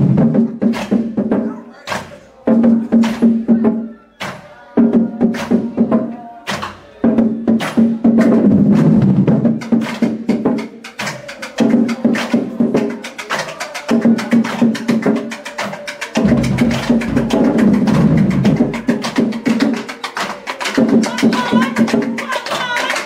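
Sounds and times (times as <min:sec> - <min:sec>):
bass drums: 0:00.0 - 0:00.6, 0:08.2 - 0:09.6, 0:16.2 - 0:19.4
snare drum strikes: 0:07.5 - 0:22.8.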